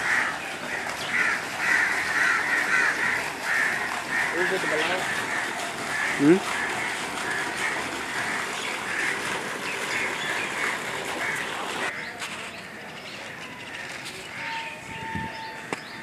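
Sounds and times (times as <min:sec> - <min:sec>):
falling water rushing: 0:00.0 - 0:11.9
birds calling: 0:00.0 - 0:16.0.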